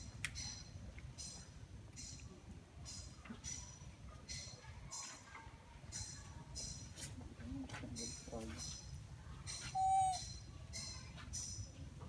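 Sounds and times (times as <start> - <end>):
shrill animal calls: 9.6 - 10.4
animal whistled note: 9.7 - 10.3.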